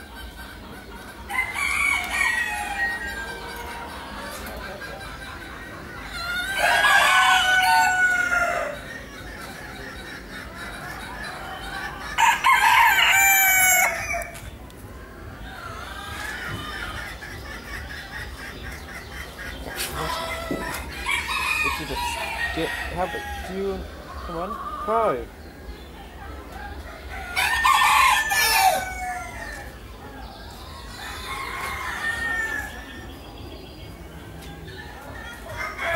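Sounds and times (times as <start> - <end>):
hens clucking: 0.0 - 35.9
rooster crowing: 6.4 - 8.8, 12.2 - 14.3, 27.3 - 29.7.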